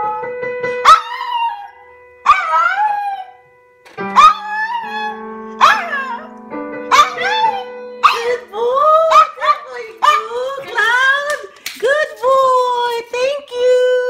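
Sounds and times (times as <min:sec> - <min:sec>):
dog howling: 0:04.2 - 0:06.3, 0:06.9 - 0:10.6.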